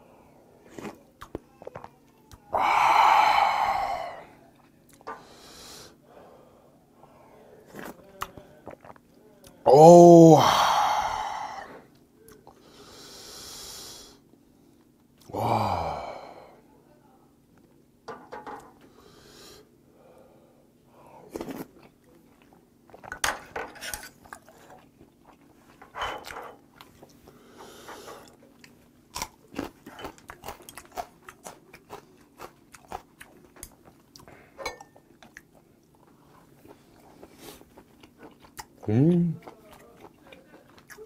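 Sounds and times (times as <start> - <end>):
chewing and crunching: 0.6 - 2.5, 7.6 - 9.6, 21.3 - 41.0.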